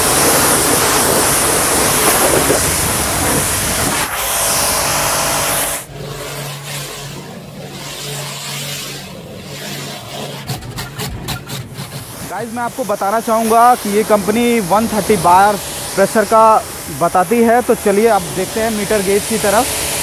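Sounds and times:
pressure washer spray hissing: 0.0 - 6.7, 12.0 - 20.0.

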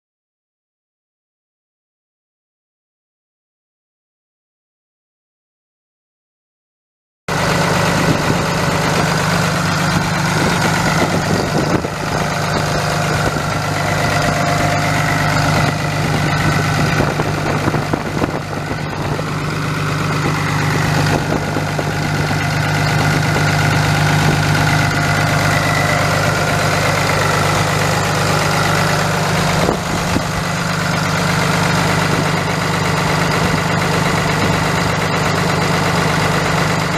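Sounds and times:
diesel engine idling: 7.3 - 36.9.

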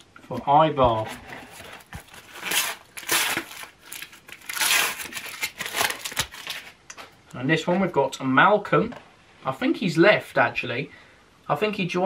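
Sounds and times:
wrapper tearing and crinkling: 1.5 - 6.8.

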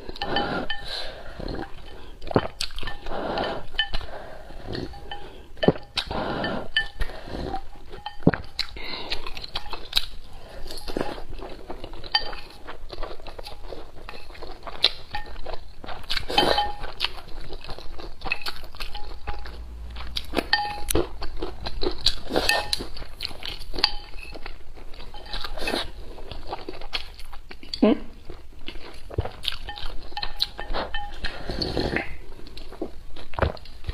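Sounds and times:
chewing and crunching: 0.0 - 33.9
chopsticks clinking on ceramic bowl: 7.9 - 8.6, 11.9 - 21.5, 22.5 - 25.9, 29.6 - 31.4.

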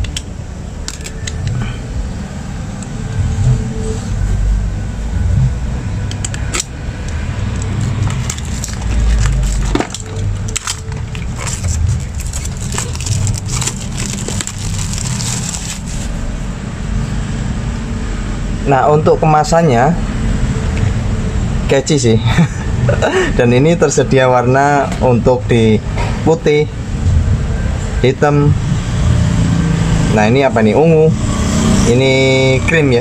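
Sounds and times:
plastic wrap crinkling: 7.6 - 16.2
knife slitting plastic wrap: 7.8 - 16.2.

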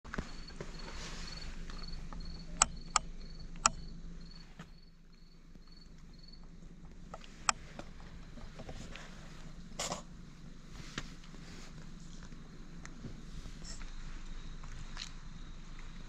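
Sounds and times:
insect chirping: 0.1 - 8.6, 11.8 - 16.0
sharp clicks: 2.1 - 3.8.

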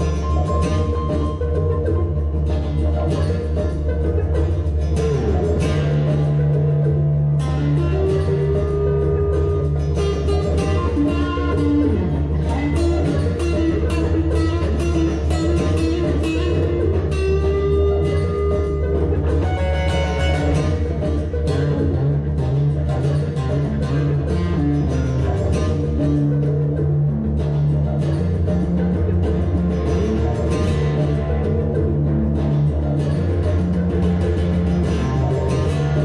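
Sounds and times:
acoustic guitar picking: 0.0 - 36.0
didgeridoo drone: 0.0 - 36.0.

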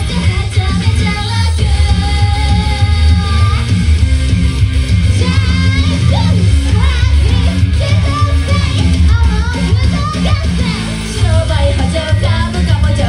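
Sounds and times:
live pop-rock song: 0.0 - 13.0.

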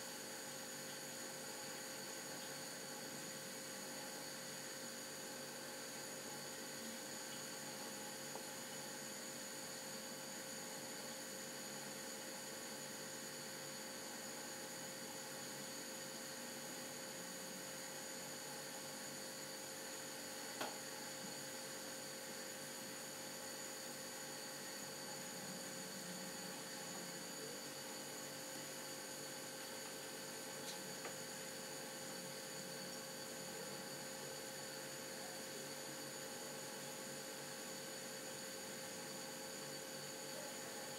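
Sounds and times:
electrical hum with high whine: 0.0 - 40.9
light hiss: 23.2 - 36.2.

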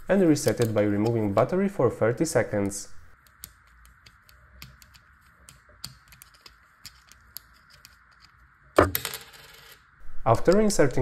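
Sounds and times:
faint steady hiss: 0.0 - 8.8, 10.0 - 11.0
screwdriver clicking on plastic: 3.2 - 8.3.

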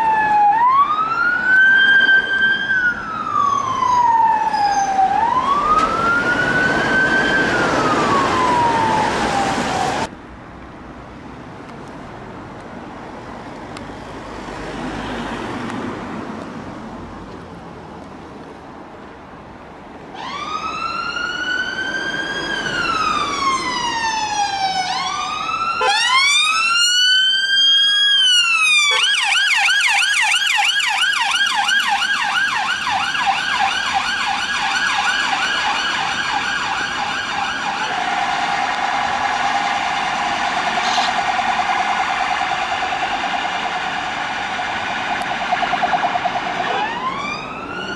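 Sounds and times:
police siren wailing: 0.0 - 10.1, 20.1 - 47.9
siren yelp and warble: 0.0 - 10.1, 20.2 - 47.9.

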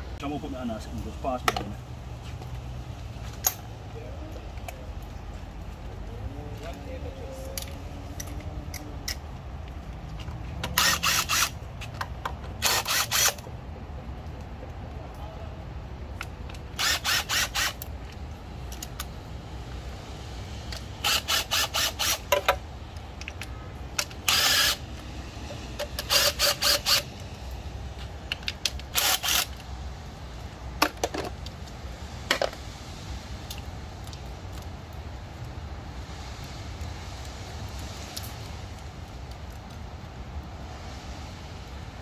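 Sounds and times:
impact driver bursts: 10.7 - 11.6, 12.6 - 13.4, 16.8 - 17.8, 21.0 - 22.3, 24.2 - 24.8, 26.0 - 27.1, 28.9 - 29.6.

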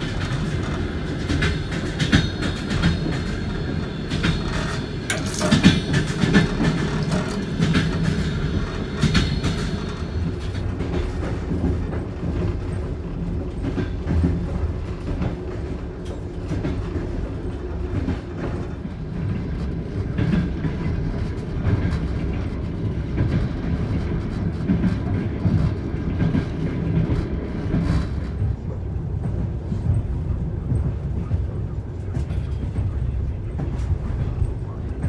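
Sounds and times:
wheels clacking over rail joints: 0.0 - 16.8
train running gear rumbling: 0.0 - 35.0.

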